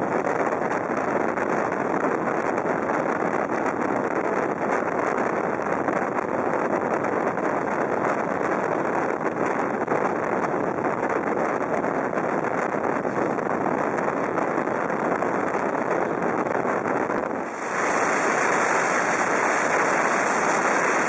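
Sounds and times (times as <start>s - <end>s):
rush of air: 17.2s - 21.0s.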